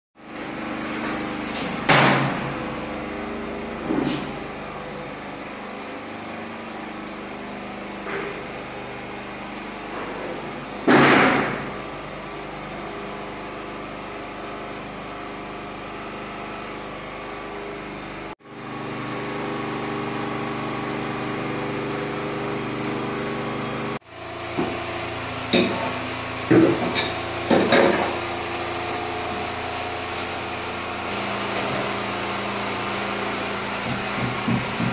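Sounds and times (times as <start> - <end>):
steady mechanical hum: 0.2 - 34.9.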